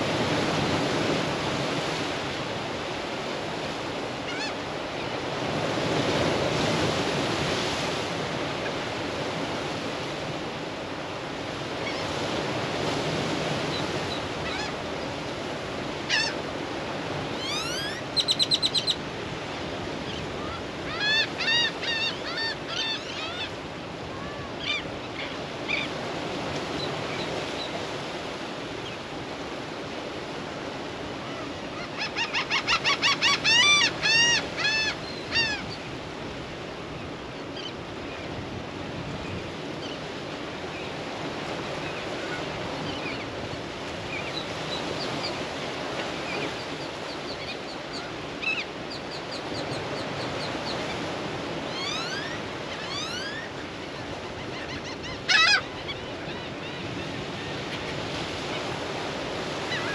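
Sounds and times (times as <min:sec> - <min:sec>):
ocean waves on rocky shore: 0:00.0 - 0:59.9
birds calling: 0:17.3 - 0:23.6, 0:31.4 - 0:36.0, 0:44.1 - 0:59.9.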